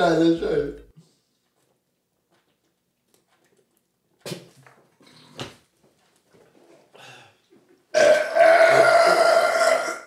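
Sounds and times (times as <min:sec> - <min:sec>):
long loud burp: 0:07.9 - 0:10.0.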